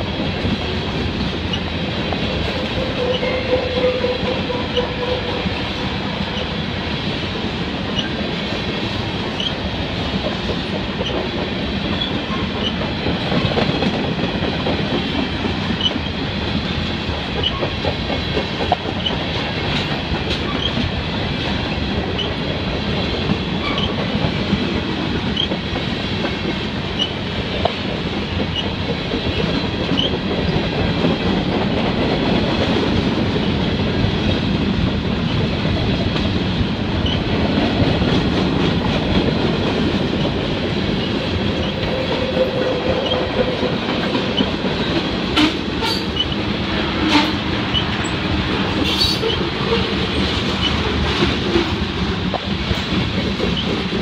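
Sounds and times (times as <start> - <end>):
steel wheels rumbling on rail: 0.0 - 54.0
clicking over rail joints: 7.8 - 33.2.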